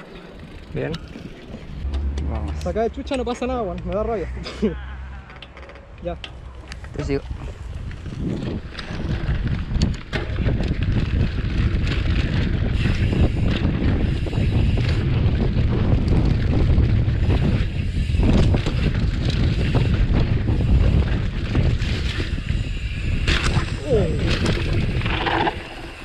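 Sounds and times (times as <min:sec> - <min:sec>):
bike rattling and clicking: 0:00.0 - 0:04.2, 0:05.1 - 0:26.0
bike tyres rumbling on dirt trail: 0:06.8 - 0:26.0
wind on microphone: 0:07.2 - 0:26.0.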